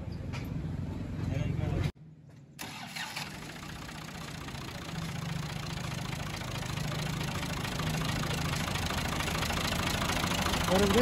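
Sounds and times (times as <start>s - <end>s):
tractor diesel engine idling: 2.6s - 11.0s.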